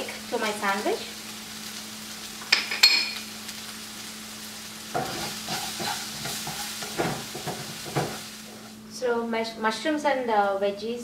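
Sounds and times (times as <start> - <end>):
vegetables sizzling in a pan: 0.0 - 10.5
spatula scraping a pan: 4.9 - 8.7.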